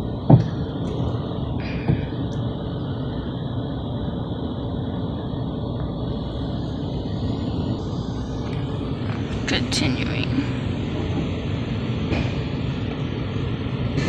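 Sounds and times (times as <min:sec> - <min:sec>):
car wash machinery: 0:00.0 - 0:14.0.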